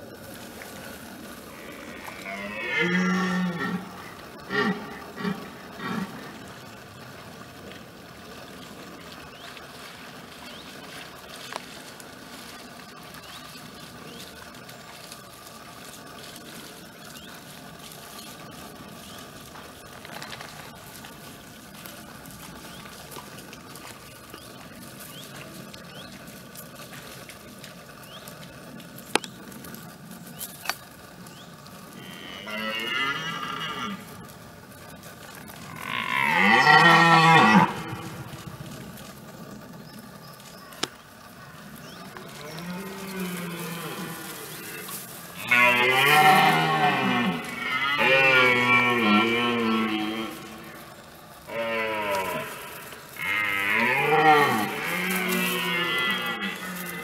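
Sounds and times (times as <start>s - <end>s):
deer stag roaring: 1.5s - 6.4s, 35.6s - 38.5s, 42.3s - 50.8s, 51.5s - 57.0s.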